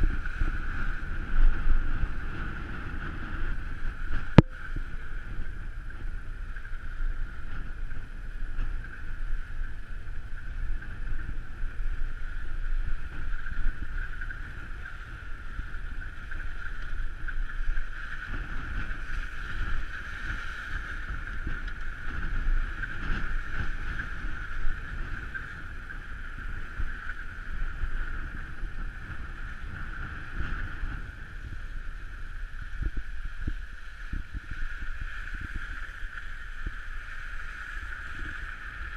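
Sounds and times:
steady high whine: 0:00.0 - 0:20.1
engine and tyres rumbling: 0:00.0 - 0:38.9
wind buffeting microphone: 0:00.0 - 0:38.9.

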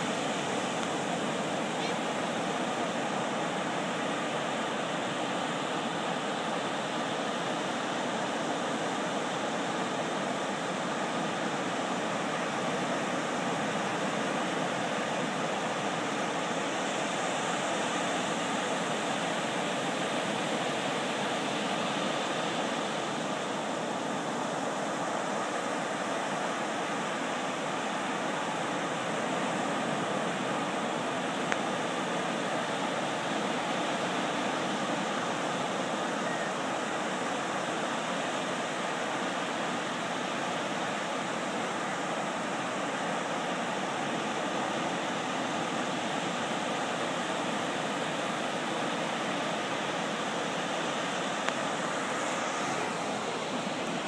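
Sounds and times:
ocean waves breaking: 0:00.0 - 0:54.0.

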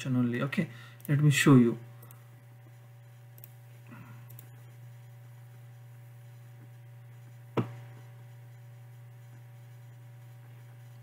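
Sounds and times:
faint electrical hum: 0:00.0 - 0:11.0
computer mouse clicks: 0:03.3 - 0:03.6, 0:04.3 - 0:04.7.

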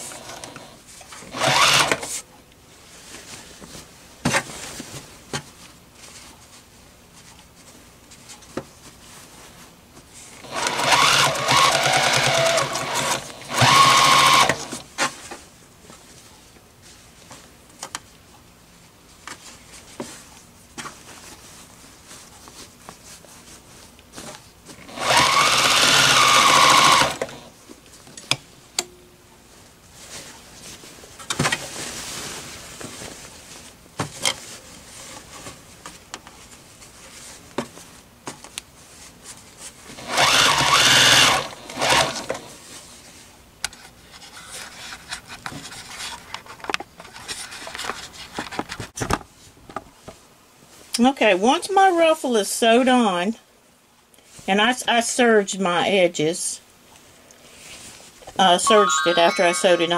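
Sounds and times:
sewing machine stitching: 0:01.3 - 0:02.1, 0:10.4 - 0:14.8, 0:24.9 - 0:27.4, 0:40.0 - 0:42.3.

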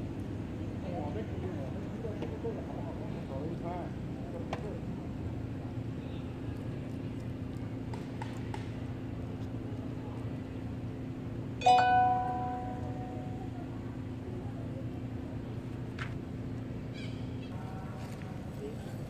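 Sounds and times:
steady low hum: 0:00.0 - 0:19.0
bell-like ring: 0:11.6 - 0:13.5.

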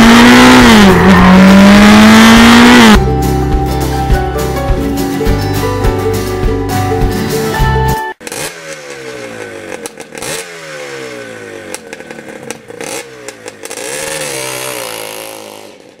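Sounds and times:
motorcycle engine revving: 0:00.0 - 0:03.0, 0:08.2 - 0:16.0.

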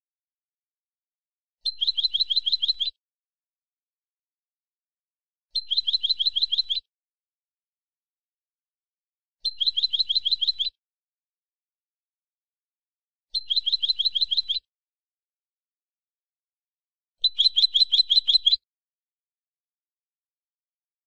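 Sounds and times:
goldfinch trilling song: 0:01.6 - 0:03.0, 0:05.6 - 0:06.9, 0:09.4 - 0:10.8, 0:13.3 - 0:14.7, 0:17.2 - 0:18.6.

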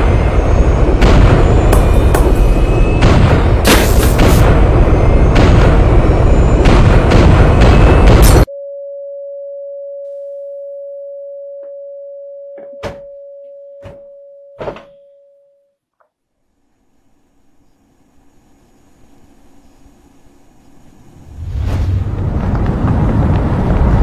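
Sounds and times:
rumbling explosion blast: 0:00.0 - 0:08.5, 0:21.3 - 0:24.0.

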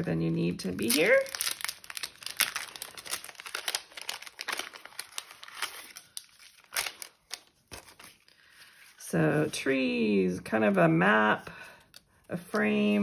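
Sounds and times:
cellophane crinkling: 0:00.0 - 0:09.0.

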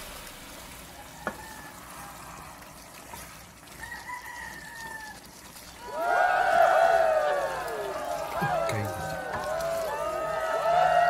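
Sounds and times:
rooster crowing: 0:01.0 - 0:02.4, 0:03.8 - 0:05.2, 0:05.8 - 0:11.0.

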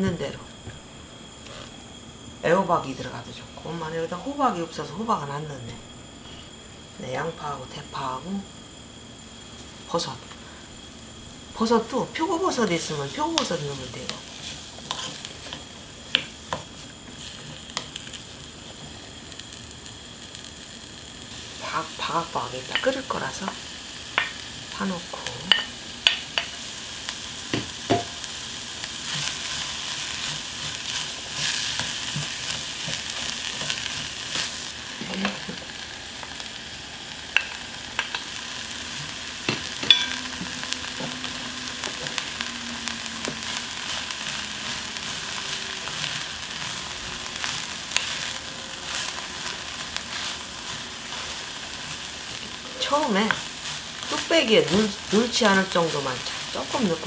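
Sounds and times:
vegetables sizzling in oil: 0:00.0 - 0:57.0
wooden spoon scraping and stirring: 0:13.4 - 0:18.2, 0:29.0 - 0:35.8, 0:43.1 - 0:57.0.

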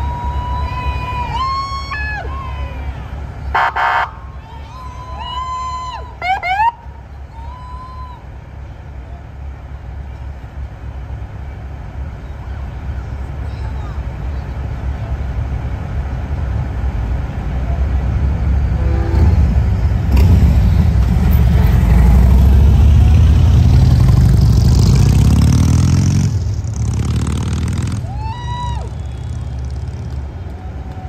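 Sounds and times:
truck engines pulling away: 0:00.0 - 0:31.0
siren whoop: 0:04.7 - 0:08.2, 0:28.1 - 0:29.1
engine accelerating: 0:17.2 - 0:31.0.

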